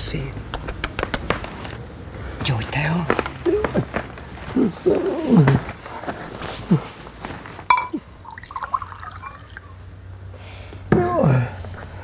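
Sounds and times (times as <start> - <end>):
glass jug clinking on mug: 7.7 - 9.7
tea pouring into mug: 8.2 - 9.8.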